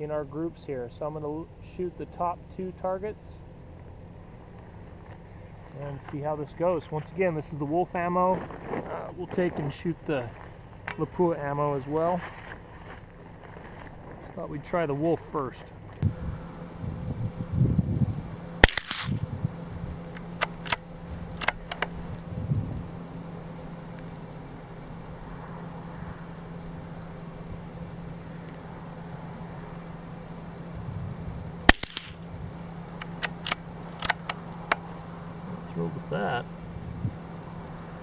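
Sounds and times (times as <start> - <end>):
rifle bolt clicking: 18.6 - 19.1, 21.4 - 21.9, 31.7 - 32.1, 33.0 - 34.8
rifle shots: 18.6 - 19.2, 31.7 - 32.2.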